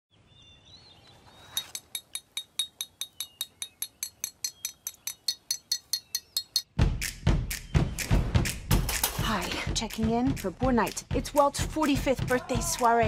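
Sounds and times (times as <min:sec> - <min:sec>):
faint bird chirps: 0:02.5 - 0:06.6.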